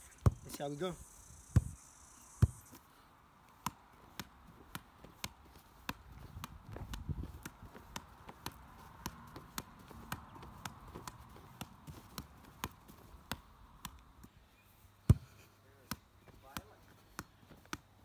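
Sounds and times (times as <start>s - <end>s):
ball thumping on ground: 0.2s - 0.7s, 1.5s - 1.8s, 2.4s - 2.8s, 3.6s - 14.3s, 15.0s - 17.9s
football taps off knees and feet: 3.6s - 14.3s, 15.1s - 15.3s.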